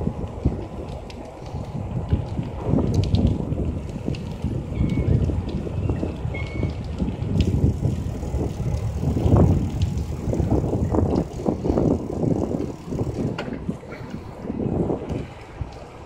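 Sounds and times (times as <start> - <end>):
wind buffeting microphone: 0.0 - 16.0
faint clicks: 0.4 - 10.1.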